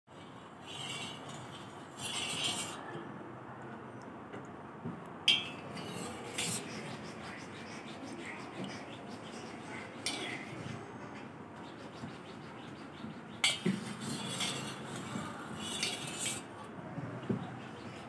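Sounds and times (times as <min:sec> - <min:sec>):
spoon stirring in metal pot: 0:00.6 - 0:02.8, 0:05.3 - 0:07.5, 0:10.0 - 0:10.5, 0:13.4 - 0:16.5.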